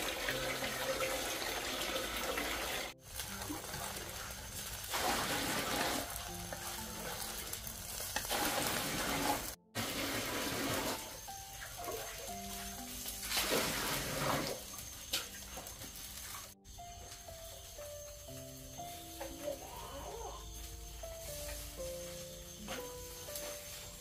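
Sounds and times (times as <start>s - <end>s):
water running from a tap: 0.0s - 16.6s
quiet melodic music: 0.0s - 24.0s.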